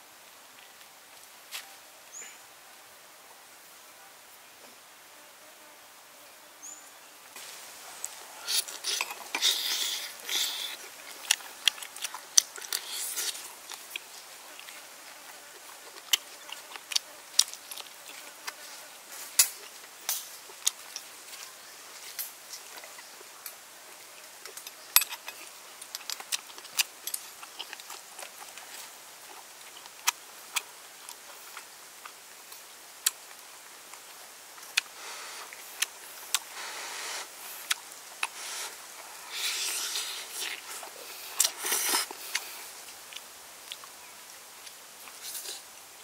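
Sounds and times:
slurping and chewing: 7.4 - 23.6, 24.4 - 34.1, 34.7 - 44.0, 44.6 - 45.7.

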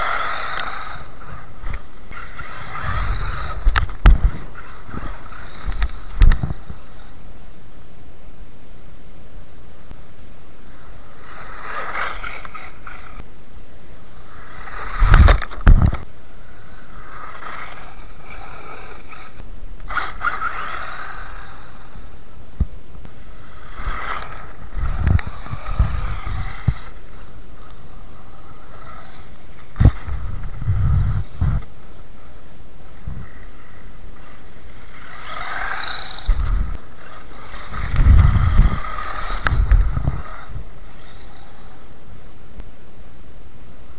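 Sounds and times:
tyres scraping on grit: 0.0 - 7.2, 10.6 - 13.2, 14.2 - 22.2, 23.3 - 31.7, 33.2 - 41.8
rc car electric motor whining: 0.0 - 7.6, 10.3 - 42.4
low rumbling: 0.0 - 43.9.

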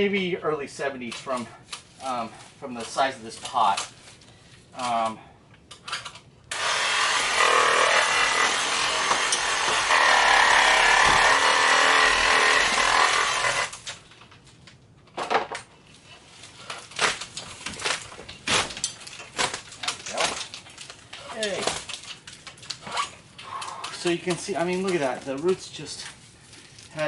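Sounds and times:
reciprocating saw cutting: 6.5 - 13.8
plant material cracking: 16.4 - 27.0.

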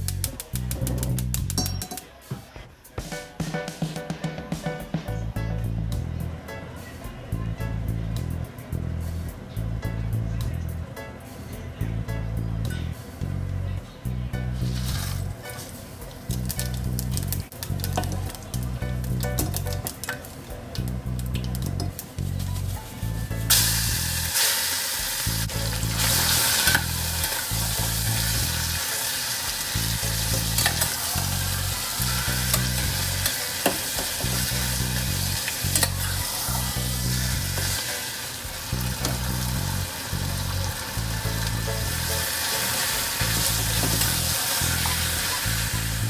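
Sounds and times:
background music with low beat: 0.0 - 24.4, 29.5 - 46.0
chicken sizzling in hot oil: 23.5 - 46.0.

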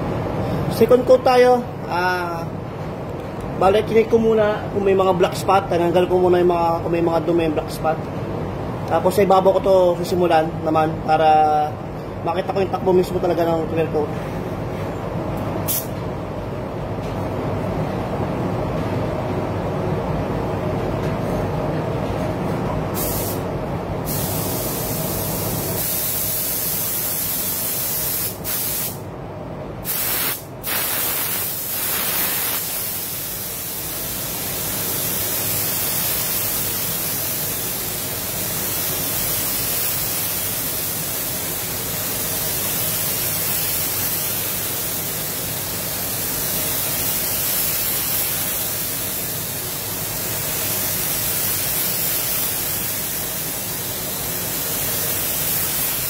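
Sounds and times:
spray gun hissing: 23.0 - 23.4, 24.1 - 29.0, 29.8 - 56.0.

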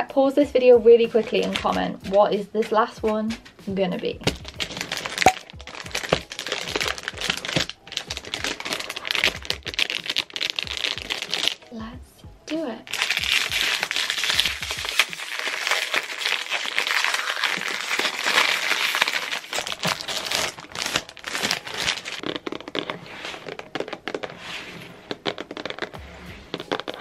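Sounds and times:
plastic wrapping crinkling: 1.1 - 3.4, 4.2 - 11.8, 12.5 - 27.0
cardboard box being handled: 19.5 - 26.0.

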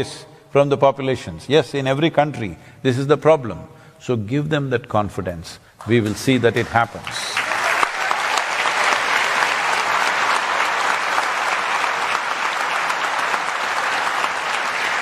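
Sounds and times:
person speaking: 0.0 - 7.4
audience applauding: 6.6 - 15.0.

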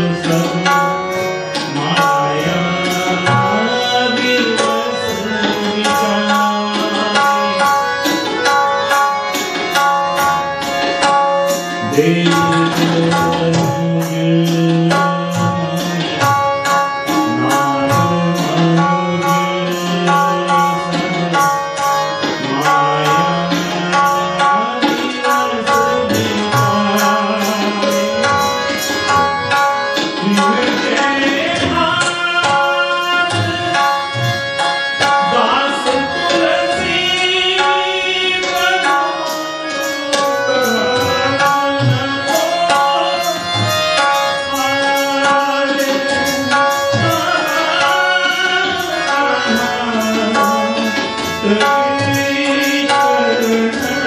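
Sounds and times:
harmonium chords: 0.0 - 54.0
man singing: 0.0 - 54.0
tabla rhythm: 0.0 - 54.0.

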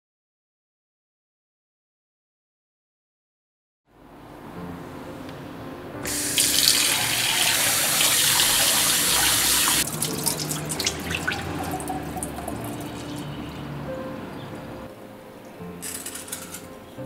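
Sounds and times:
hands rinsing rice in water: 6.1 - 13.2.

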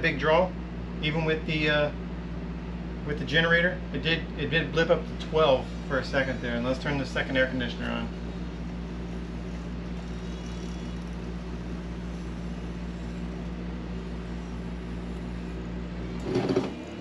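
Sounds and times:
air conditioner humming: 0.0 - 17.0
air conditioner start-up burst: 15.2 - 17.0.

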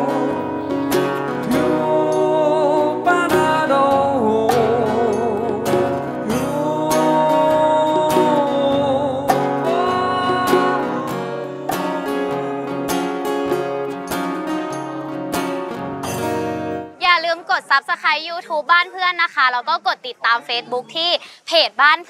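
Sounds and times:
man singing with vibrato: 0.0 - 15.2
strummed acoustic guitar: 0.0 - 17.0.

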